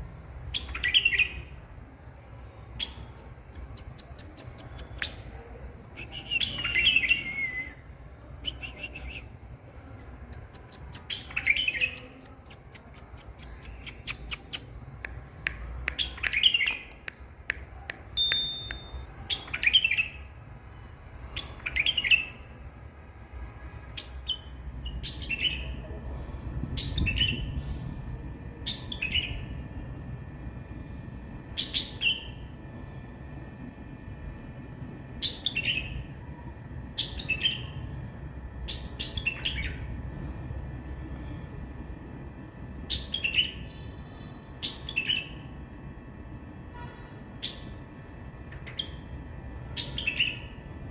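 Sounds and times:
bird singing: 0.5s - 1.6s, 6.0s - 9.4s, 10.7s - 12.6s, 21.3s - 22.9s, 24.0s - 25.8s, 28.6s - 29.6s, 31.6s - 32.5s, 35.2s - 36.1s, 37.0s - 37.8s, 38.6s - 39.9s, 42.9s - 45.5s, 48.6s - 49.1s, 49.8s - 50.6s
steady low rumble: 22.3s - 50.9s.

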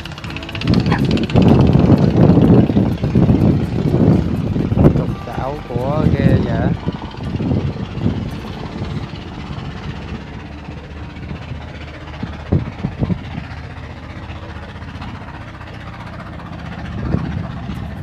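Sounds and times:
diesel engine idling: 0.0s - 18.0s.

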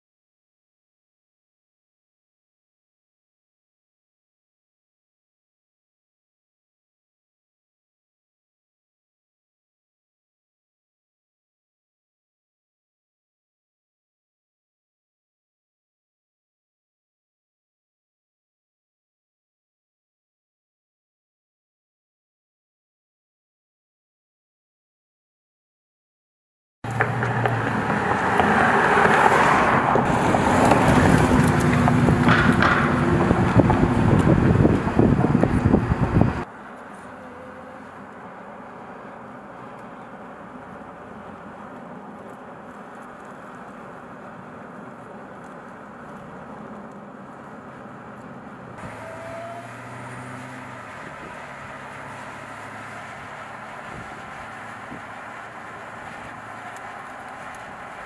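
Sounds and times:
car engine driving: 26.8s - 58.0s
road and tyre noise: 26.8s - 58.0s.

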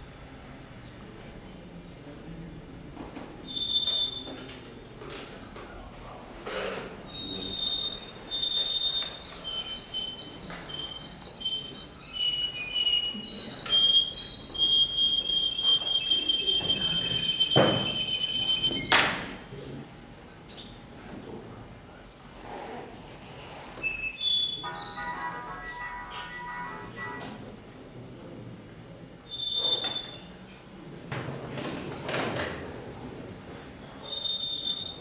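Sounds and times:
canary singing: 0.0s - 4.3s, 7.1s - 18.9s, 20.5s - 30.4s, 32.8s - 35.0s
sharp knocks: 17.5s - 18.0s.

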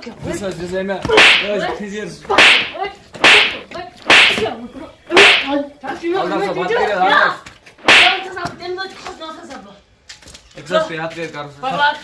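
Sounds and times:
sharp slaps on a person: 1.1s - 1.6s, 2.3s - 4.5s, 5.1s - 5.6s, 7.8s - 8.6s.

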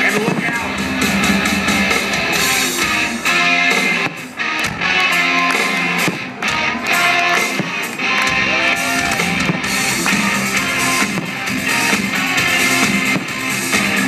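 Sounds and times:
rock music with loud guitar: 0.0s - 14.0s.

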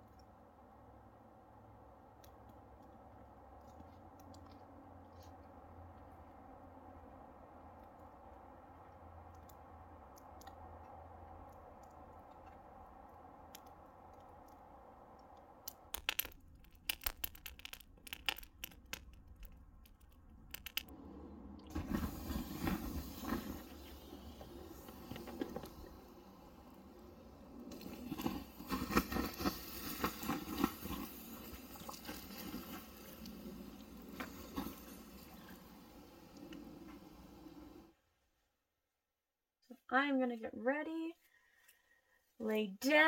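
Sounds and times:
campfire crackling and popping: 9.2s - 20.9s, 21.7s - 26.0s, 27.6s - 35.6s
water sizzling on embers: 21.7s - 37.9s.

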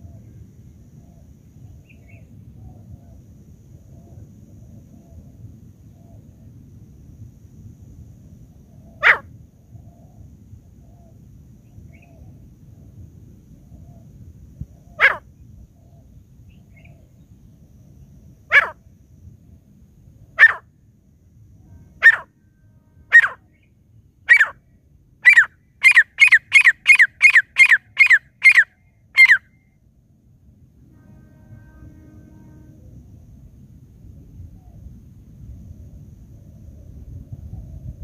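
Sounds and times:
francolin calling: 8.8s - 9.3s, 14.7s - 17.3s, 18.5s - 18.8s, 20.3s - 20.7s, 21.9s - 22.4s, 23.0s - 24.6s, 25.2s - 29.7s.

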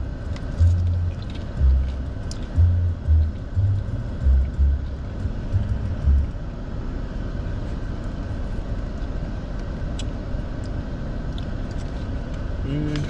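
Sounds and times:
bass beats from car stereo: 0.0s - 6.4s
car cabin engine rumble: 0.0s - 13.0s.

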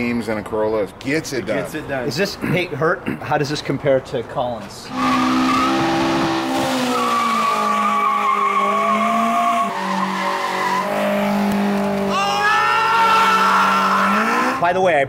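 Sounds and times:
car engine at high revs: 4.9s - 12.2s, 13.1s - 14.6s
tires squealing: 4.9s - 14.6s.

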